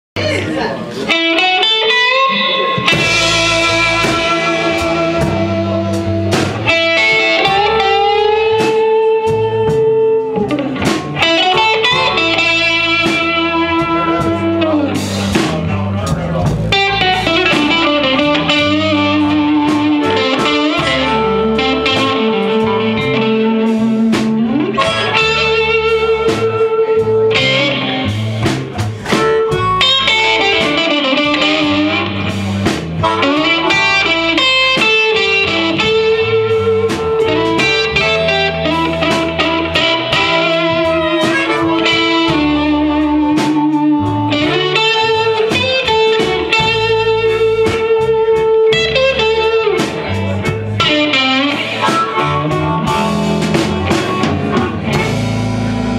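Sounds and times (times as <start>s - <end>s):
blues band playing: 0.2s - 55.9s
amplified harmonica: 29.2s - 48.9s.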